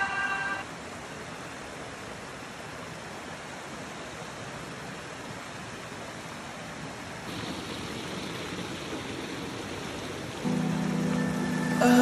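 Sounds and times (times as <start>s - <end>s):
brook water rushing: 0.0s - 12.0s.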